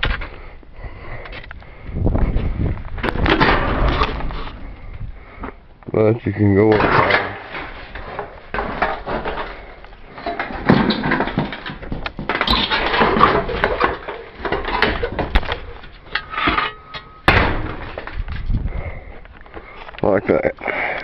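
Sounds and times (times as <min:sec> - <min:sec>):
concrete blocks scraping: 0:06.7 - 0:20.0
blocks thumping against tin: 0:10.2 - 0:18.2.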